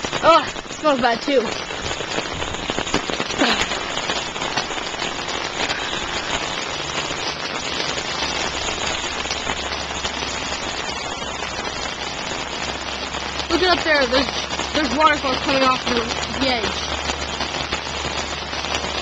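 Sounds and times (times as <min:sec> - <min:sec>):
heavy rain falling: 0:00.0 - 0:19.0.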